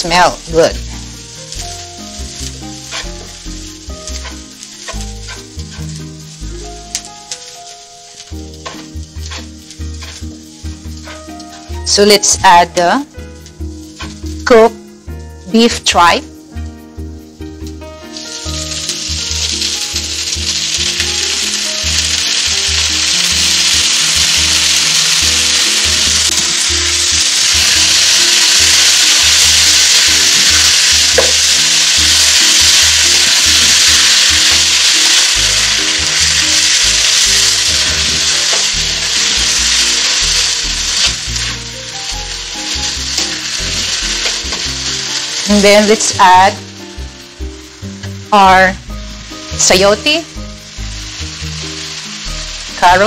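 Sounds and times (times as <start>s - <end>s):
tripe sizzling in hot oil: 0.0s - 53.0s
spatula stirring in pan: 2.7s - 6.1s, 8.5s - 11.8s.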